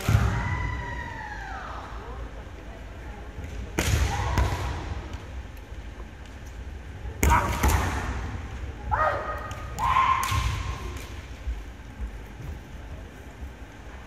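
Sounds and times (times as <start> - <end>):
fencers shouting: 8.9 - 11.0.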